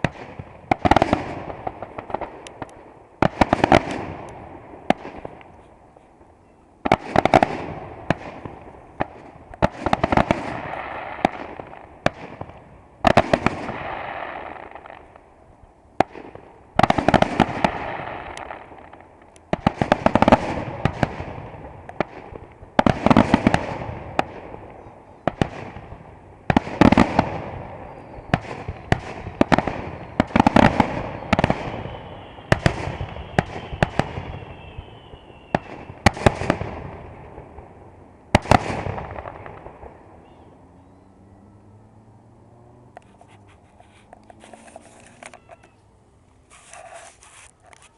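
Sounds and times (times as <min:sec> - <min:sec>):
fireworks bangs with crackle: 0:00.0 - 0:05.5, 0:06.8 - 0:15.3, 0:16.0 - 0:40.4.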